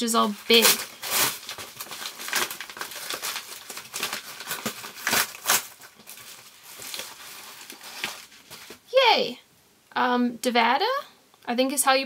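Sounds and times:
packaging crinkling and tearing: 0:00.2 - 0:08.9.

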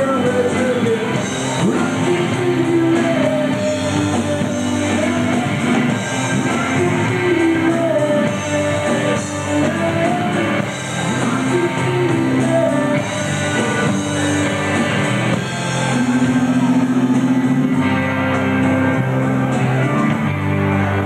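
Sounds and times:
live rock band playing: 0:00.0 - 0:21.0
sliding melodic lead line: 0:00.0 - 0:21.0.

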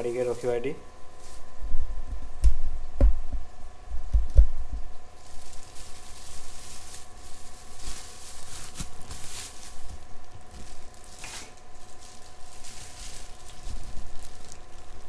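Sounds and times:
plastic bag crinkling: 0:05.1 - 0:15.0.

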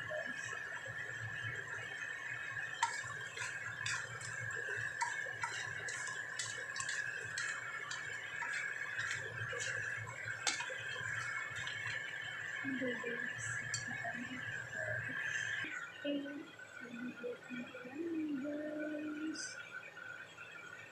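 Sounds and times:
steady hum: 0:00.0 - 0:20.9
utensil scraping wok: 0:02.8 - 0:14.7.

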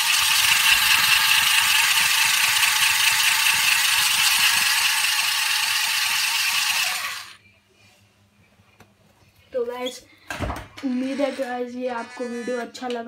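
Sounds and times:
toy car motors whirring: 0:00.0 - 0:07.4.

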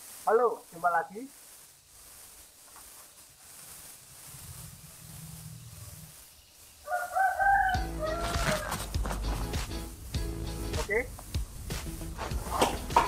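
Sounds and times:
faint steady hiss: 0:00.0 - 0:13.0
background music: 0:07.8 - 0:13.0.

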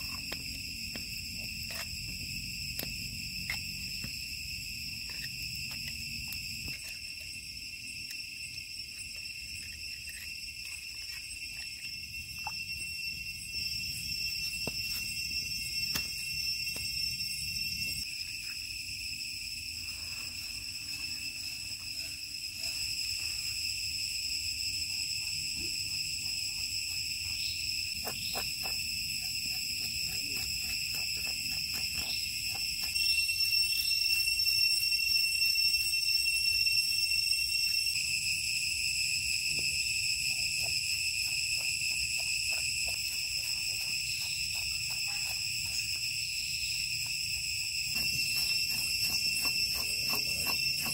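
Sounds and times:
insects chorus: 0:00.0 - 0:50.9
knife scraping scales: 0:48.0 - 0:50.9.

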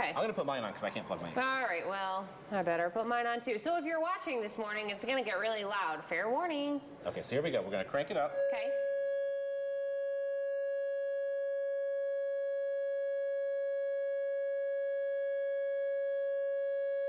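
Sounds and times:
loud steady tone from speaker: 0:08.3 - 0:17.0.

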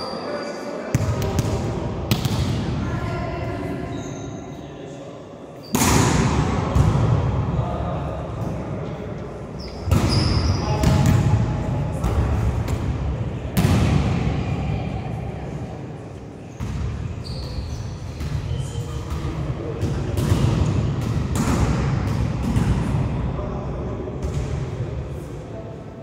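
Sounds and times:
volleyball thuds with echo: 0:00.9 - 0:02.8, 0:05.6 - 0:07.6, 0:09.8 - 0:14.5, 0:18.2 - 0:23.3, 0:24.1 - 0:24.8.

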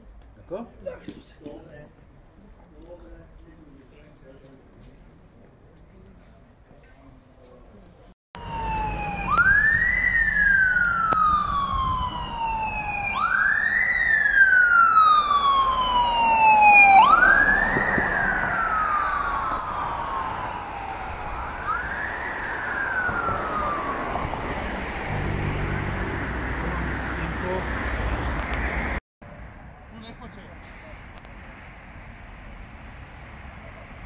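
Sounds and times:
police siren wailing: 0:08.4 - 0:27.3.

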